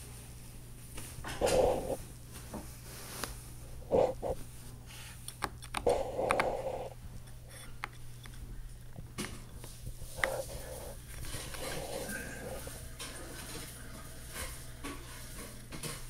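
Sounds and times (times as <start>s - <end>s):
scratchy rustle on fabric: 0.4s - 5.1s.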